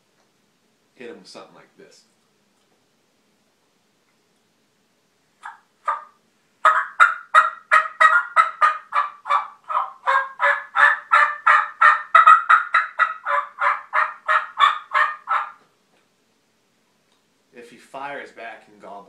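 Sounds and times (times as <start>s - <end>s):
turkey call yelps: 5.4s - 15.6s.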